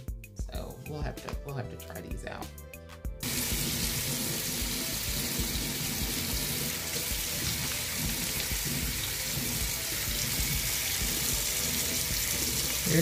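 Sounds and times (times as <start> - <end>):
faucet water splashing into sink: 3.2 - 13.0.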